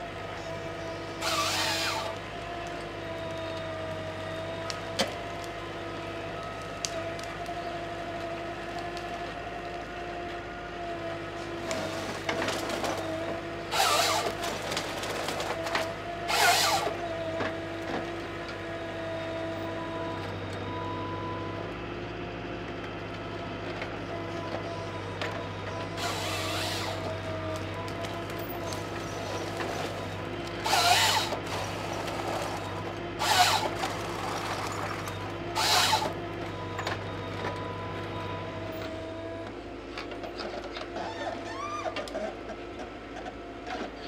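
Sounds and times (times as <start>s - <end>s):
harvester engine and hydraulics whine: 0.0s - 44.0s
harvester head cutting stems: 13.7s - 17.5s, 25.8s - 36.2s.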